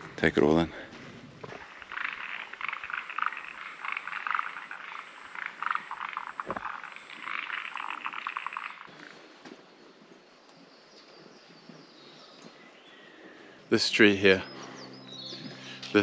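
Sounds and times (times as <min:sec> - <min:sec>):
frogs croaking: 0:01.0 - 0:09.4, 0:13.0 - 0:16.0.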